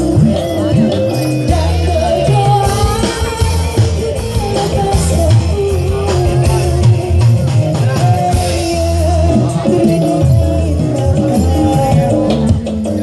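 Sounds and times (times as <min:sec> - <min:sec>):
deep bass: 0:00.0 - 0:13.0
drums: 0:00.0 - 0:13.0
held melody line: 0:00.0 - 0:13.0
person singing: 0:00.0 - 0:13.0.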